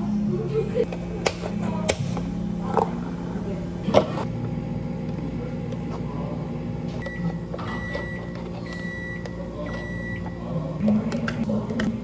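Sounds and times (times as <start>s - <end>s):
low machine hum: 0.0s - 12.0s
appliance beeping: 6.9s - 11.0s.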